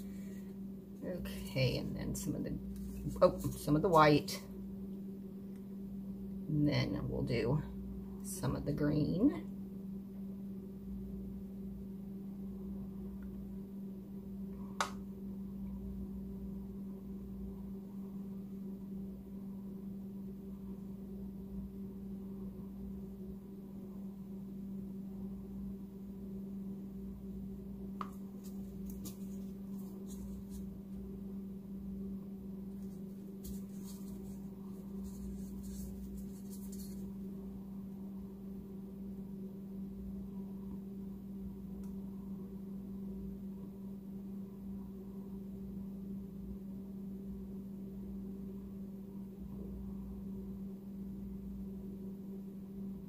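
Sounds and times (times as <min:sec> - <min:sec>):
steady low hum: 0:00.0 - 0:53.0
faint clicks and rustles: 0:32.7 - 0:37.2.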